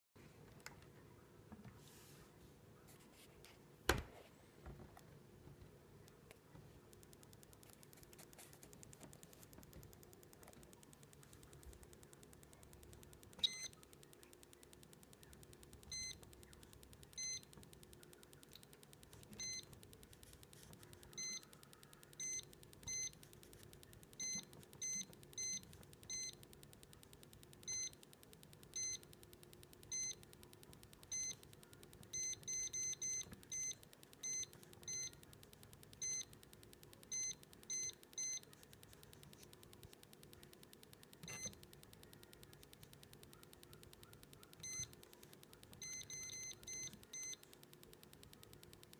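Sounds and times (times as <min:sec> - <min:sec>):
short high key beeps: 0:13.3 - 0:13.9, 0:40.7 - 0:45.0.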